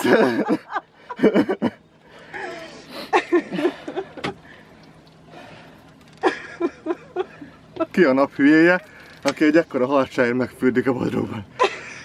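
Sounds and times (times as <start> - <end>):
man laughing: 0.0 - 1.8, 2.4 - 4.3, 6.2 - 9.0, 11.5 - 12.0.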